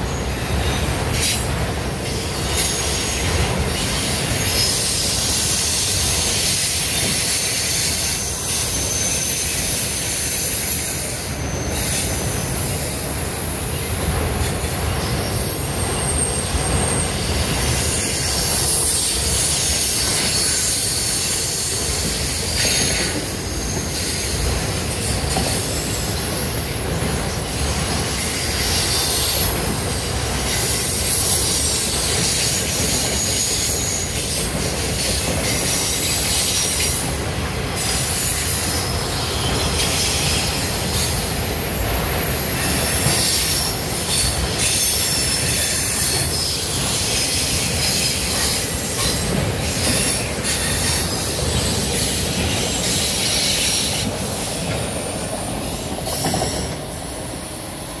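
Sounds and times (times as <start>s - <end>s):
steel wheels rumbling on rail: 0.0s - 58.0s
high-pitched wheel squeal: 2.1s - 13.0s, 15.0s - 26.7s.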